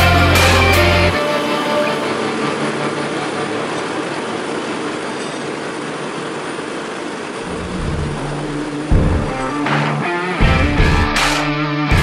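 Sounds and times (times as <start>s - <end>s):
heavy machinery running: 0.0s - 12.0s
asphalt rushing into hopper: 7.4s - 10.0s.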